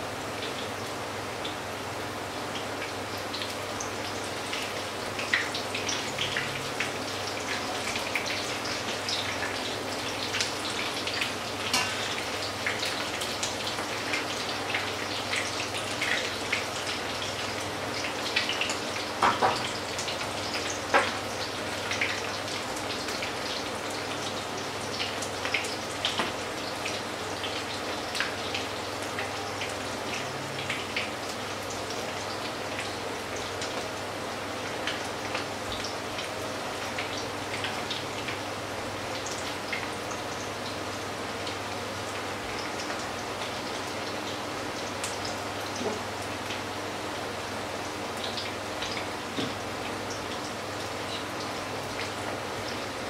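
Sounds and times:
oil sizzling and crackling: 0.0 - 53.0.

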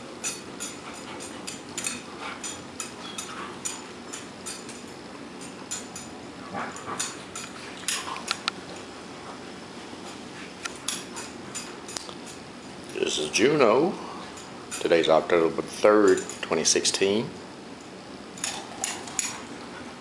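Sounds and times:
collar tags jingling: 16.0 - 16.7.

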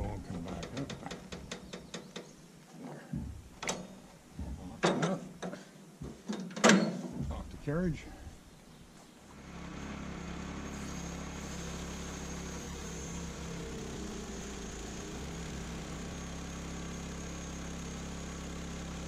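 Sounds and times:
sawmill engine running: 9.3 - 19.0.

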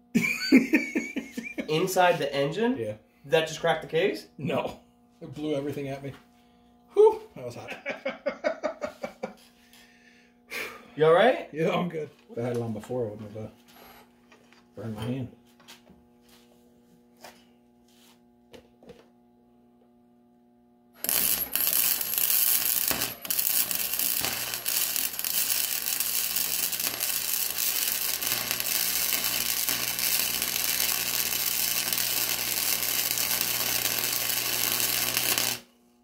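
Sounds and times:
welding arc crackling and sizzling: 1.0 - 2.6, 21.0 - 35.8.

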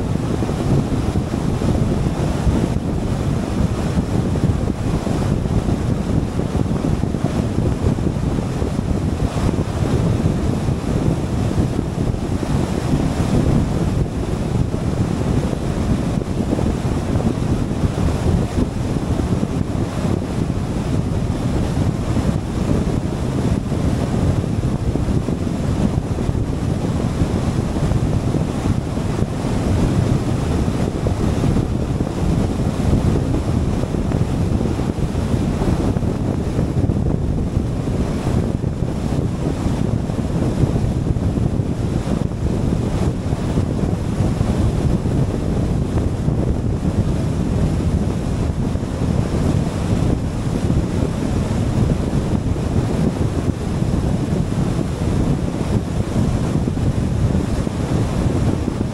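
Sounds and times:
car road and wind noise: 0.0 - 58.9
wind buffeting microphone: 0.0 - 58.9.

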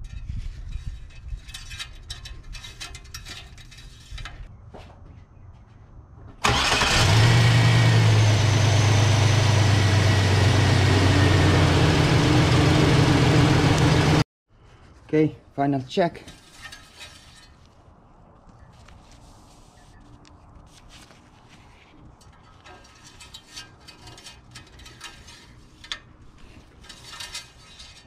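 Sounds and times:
truck engine starting and idling: 6.4 - 14.2.

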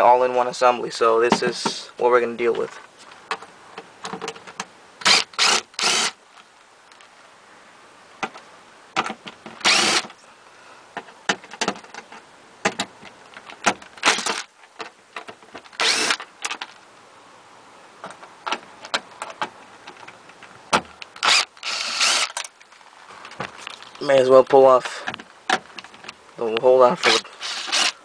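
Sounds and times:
cordless driver spinning: 5.0 - 6.2, 9.6 - 10.2, 15.8 - 16.2, 21.2 - 22.5, 27.0 - 28.0.

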